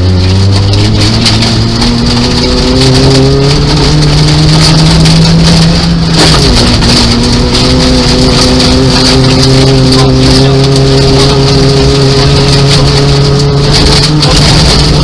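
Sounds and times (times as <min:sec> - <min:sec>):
car engine accelerating: 0:00.0 - 0:15.0
gravel and water patter: 0:00.0 - 0:15.0
road noise: 0:00.0 - 0:15.0.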